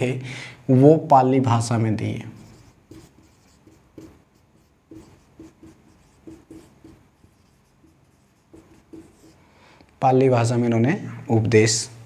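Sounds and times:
marker squeaking on whiteboard: 2.4s - 9.4s.

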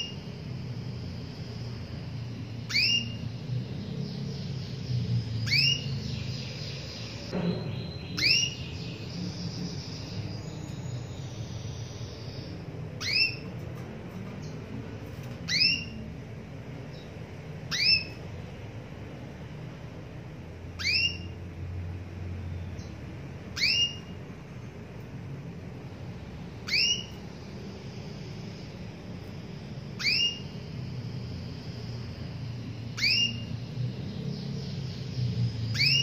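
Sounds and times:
canary calling: 0.0s - 13.6s, 15.1s - 16.2s, 16.8s - 18.4s, 20.7s - 21.6s, 22.7s - 24.3s, 26.5s - 33.7s, 34.6s - 36.0s.

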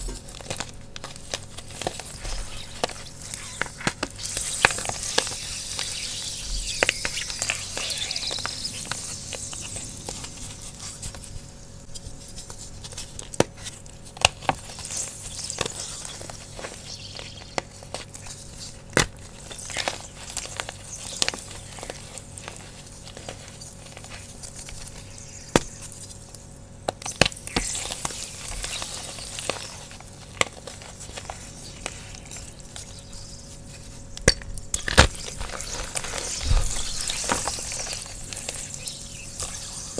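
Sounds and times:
hissing sizzle of wet chalk: 0.2s - 39.9s.

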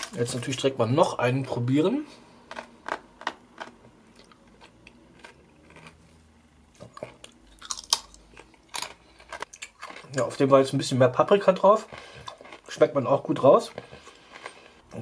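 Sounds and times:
crunching chip: 2.5s - 6.0s, 6.8s - 10.4s, 11.6s - 13.0s
chewing: 2.5s - 6.1s, 6.8s - 10.3s, 11.5s - 12.9s, 13.7s - 14.8s.

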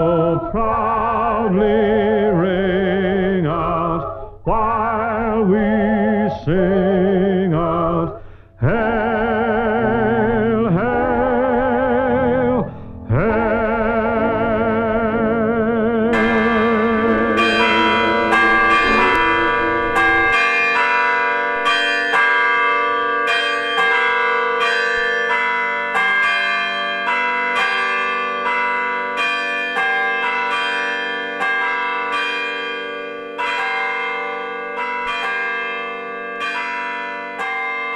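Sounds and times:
church bells ringing: 12.0s - 37.9s
song with accompaniment: 12.6s - 21.8s.

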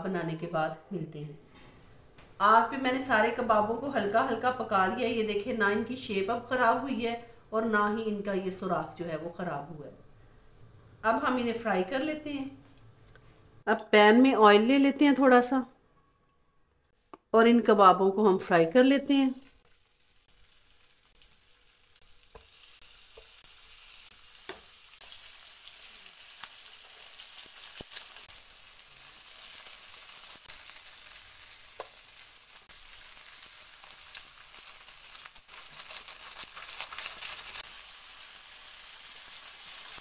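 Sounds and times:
meat sizzling in a pan: 19.0s - 40.0s.

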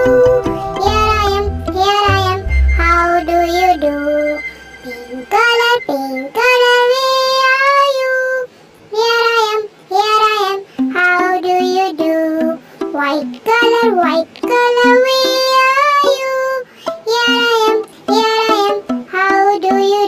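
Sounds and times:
musical accompaniment: 0.0s - 7.0s
child singing: 0.0s - 20.0s.

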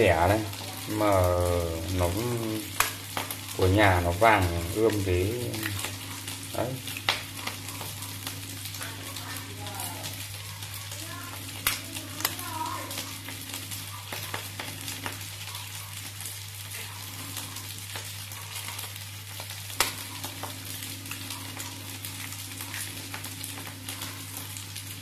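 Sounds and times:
rice sizzling in hot oil: 0.0s - 25.0s.

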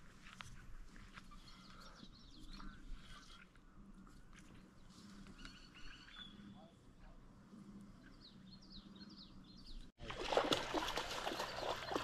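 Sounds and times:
small birds chirping: 1.0s - 9.9s
crackling water splashing: 10.0s - 12.0s.

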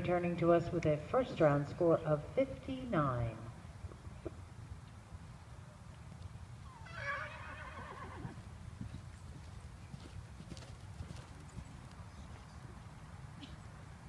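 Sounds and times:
horse hoofbeats on sand: 8.2s - 12.9s.

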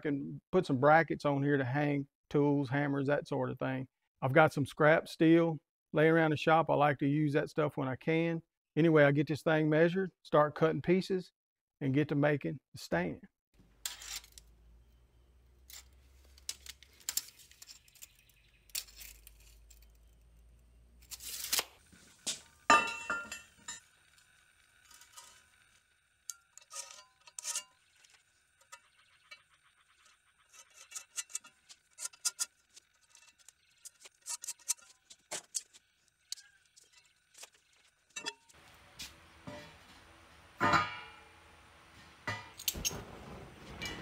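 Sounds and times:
light clinks and scrapes of steel: 13.8s - 14.6s, 15.6s - 21.6s, 22.2s - 38.6s
loud clank of steel on steel: 40.6s - 41.4s.

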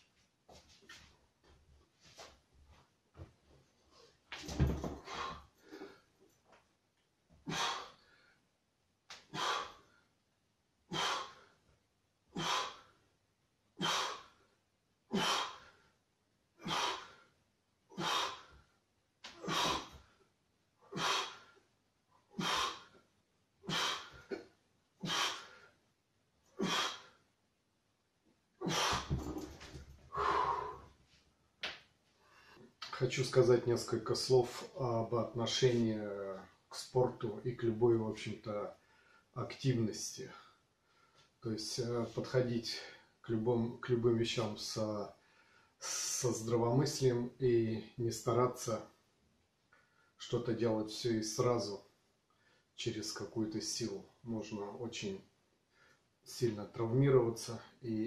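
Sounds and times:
man breathing forcefully: 4.9s - 6.1s, 7.4s - 8.3s, 9.2s - 9.9s, 10.9s - 11.5s, 12.4s - 13.0s, 13.8s - 14.4s, 15.1s - 15.9s, 16.6s - 17.3s, 18.0s - 18.6s, 19.3s - 20.2s, 20.8s - 21.6s, 22.3s - 23.0s, 23.7s - 24.3s, 25.0s - 25.8s, 26.6s - 27.2s, 28.6s - 31.0s.

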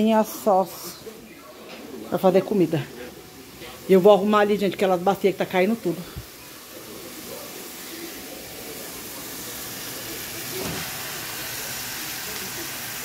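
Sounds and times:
meat sizzling in a pan: 2.5s - 13.0s.

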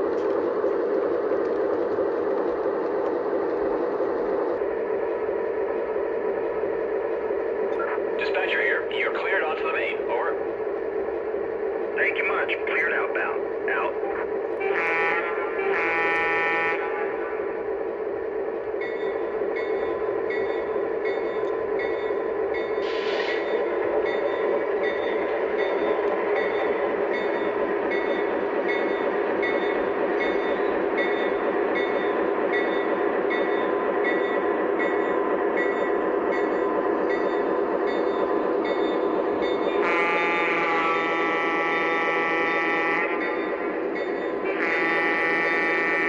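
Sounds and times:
short hiss: 22.8s - 23.5s.

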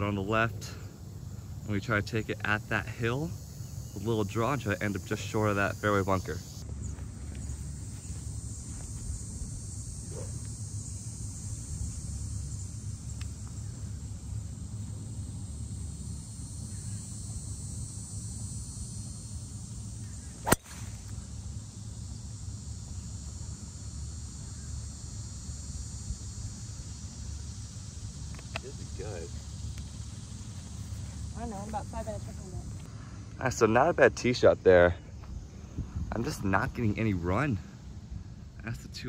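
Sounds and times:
golf driver striking ball: 20.4s - 21.0s.

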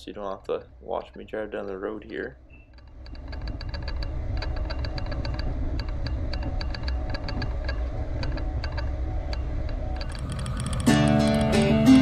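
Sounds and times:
rapid uneven ticking: 0.0s - 11.8s
tractor engine rumbling: 2.8s - 12.0s.

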